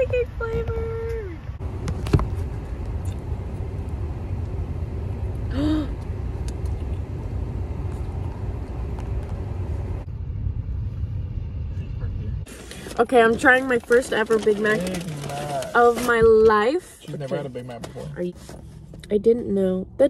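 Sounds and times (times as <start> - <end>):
car engine rumble in cabin: 0.0 - 20.0
person's voice: 13.0 - 18.4.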